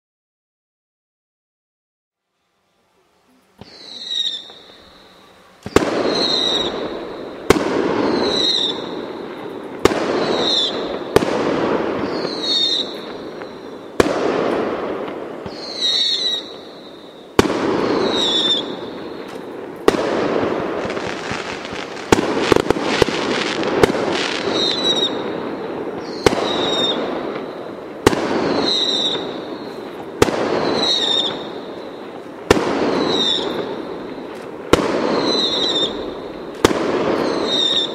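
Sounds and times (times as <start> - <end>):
fireworks bursting with echo: 3.4 - 37.9
short high whistle: 3.6 - 5.4.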